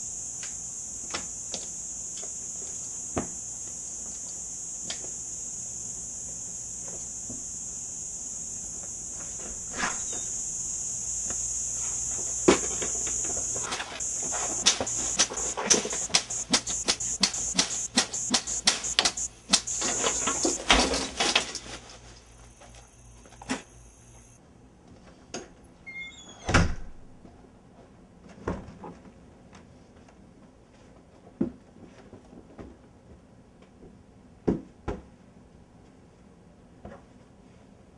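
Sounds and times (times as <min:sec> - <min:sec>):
cicada buzzing: 0:00.0 - 0:21.5, 0:22.2 - 0:24.4.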